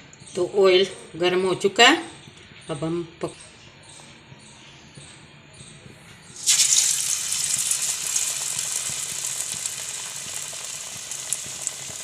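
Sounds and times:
battered bread sizzling in hot oil: 6.4 - 12.0.

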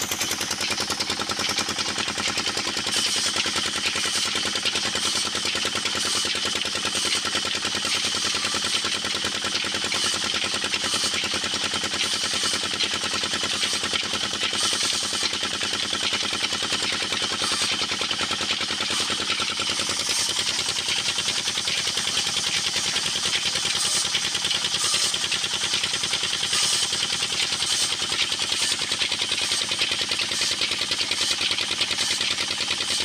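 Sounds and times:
diesel engine running: 0.0 - 7.1, 16.2 - 33.0.

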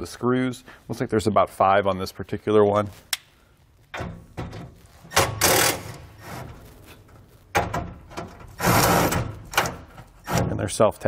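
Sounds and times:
screws scraping metal: 5.1 - 6.7, 8.2 - 10.8.

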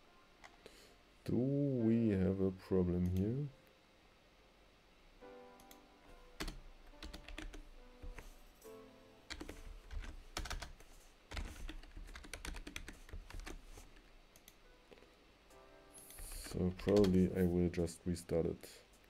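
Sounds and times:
background music: 0.0 - 3.8, 4.4 - 11.7, 14.4 - 18.5
computer keyboard typing: 5.6 - 8.3, 9.3 - 14.6, 16.0 - 17.4.

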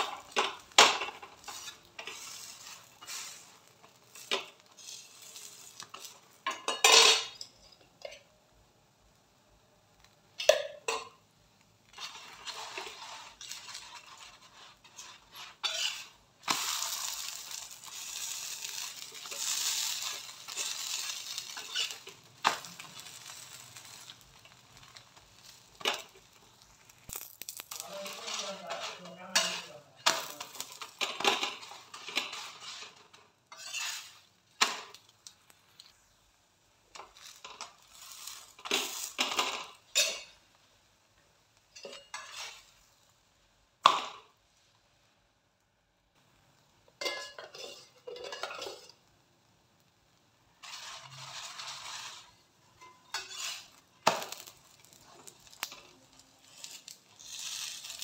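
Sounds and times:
spatula scraping griddle: 0.0 - 7.5, 11.8 - 35.0, 36.9 - 40.4, 41.7 - 43.0, 47.0 - 49.1, 50.5 - 58.0
flatbread sizzling on griddle: 0.0 - 58.0.

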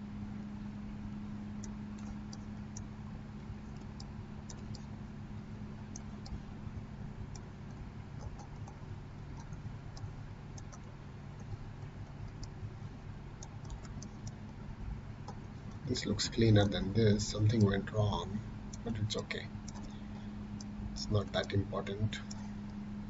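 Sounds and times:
steady low hum: 0.0 - 23.0
computer mouse clicking: 1.6 - 2.9, 3.6 - 5.0, 5.9 - 12.8, 13.4 - 14.6, 18.7 - 22.8.

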